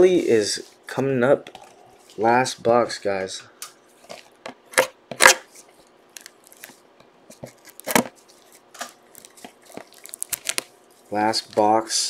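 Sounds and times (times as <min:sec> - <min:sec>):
plastic wrap crinkling: 0:07.4 - 0:11.8.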